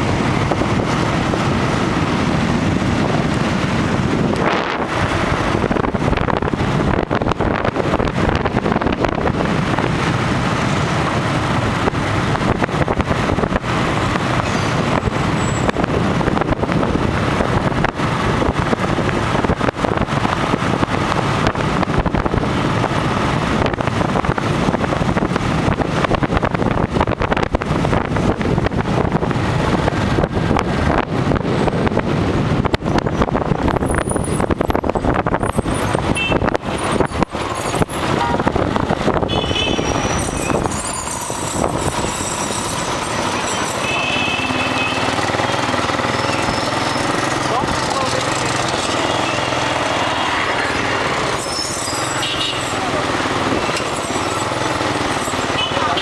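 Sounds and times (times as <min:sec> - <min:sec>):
wind buffeting microphone: 0:00.0 - 0:43.4.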